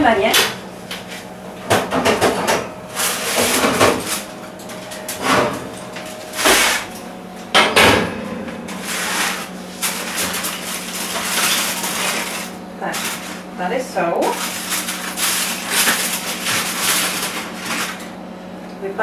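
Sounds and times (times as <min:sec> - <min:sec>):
steady low hum: 0:00.0 - 0:19.0
metal tin clanking and scraping: 0:08.4 - 0:13.4
foil rustling: 0:08.7 - 0:18.2.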